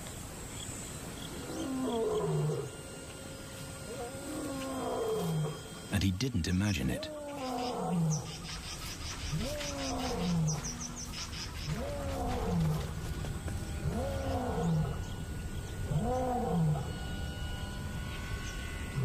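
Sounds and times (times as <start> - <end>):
lion roaring: 1.3 - 2.8, 3.9 - 5.7, 7.0 - 8.4, 9.3 - 13.1, 13.8 - 15.2, 15.8 - 17.0.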